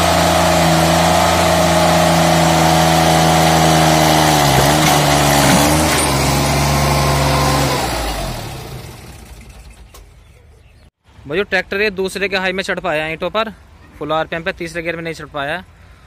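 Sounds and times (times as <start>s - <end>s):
diesel tractor engine under load: 0.0s - 10.8s.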